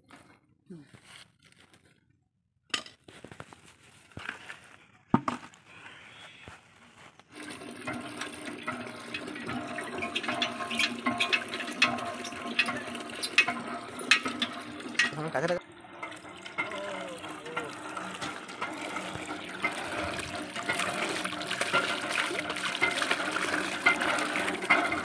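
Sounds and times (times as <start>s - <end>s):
water pouring into plastic bucket: 7.3s - 25.0s
spanners clinking on iron pump: 9.5s - 25.0s.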